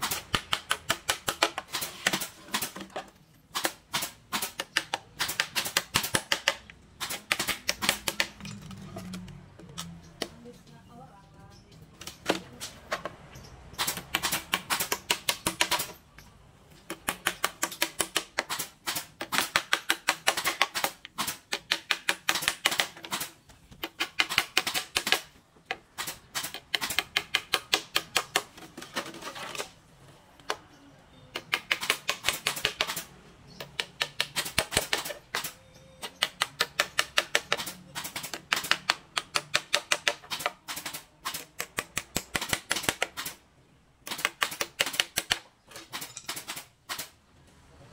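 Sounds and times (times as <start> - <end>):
fast sharp clicks: 13.7 - 16.0, 31.3 - 43.4.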